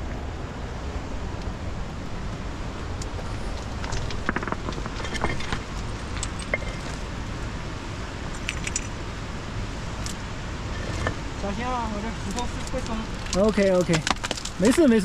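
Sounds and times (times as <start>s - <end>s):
clicks and clinks on rock: 3.0s - 7.1s, 8.3s - 9.0s, 12.3s - 15.0s.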